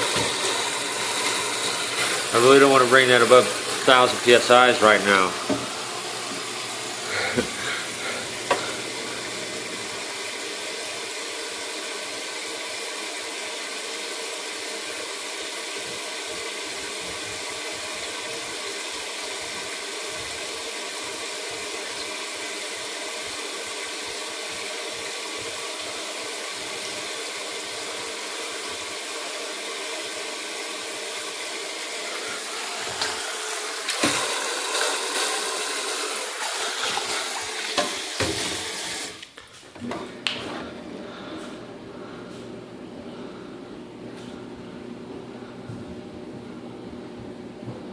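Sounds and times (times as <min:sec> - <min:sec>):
rushing hissing water: 0:00.0 - 0:11.9, 0:14.3 - 0:39.2.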